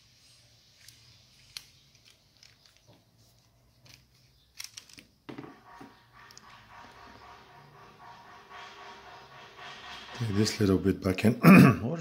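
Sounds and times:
small metal parts clicking: 0.8 - 3.0, 3.8 - 5.2.

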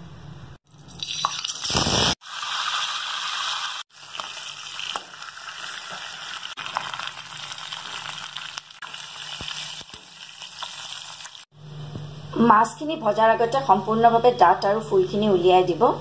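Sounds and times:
fish frying in hot oil: 0.9 - 11.5.

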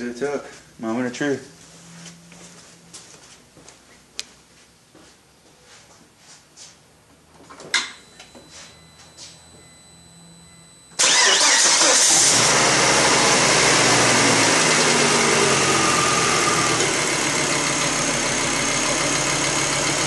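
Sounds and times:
car engine starting and idling: 10.8 - 20.0.

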